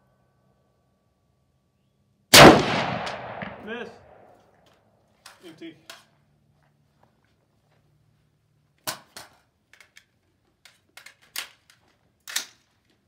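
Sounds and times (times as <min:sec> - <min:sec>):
rifle magazine metallic clicks: 0:08.8 - 0:12.7.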